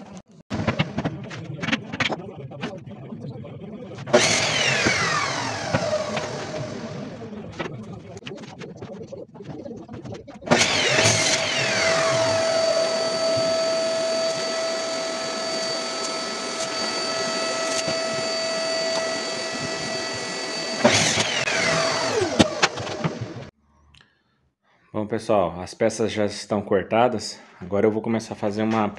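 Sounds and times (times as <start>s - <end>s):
power tool motor whining: 4.1s - 7.4s, 10.5s - 23.5s.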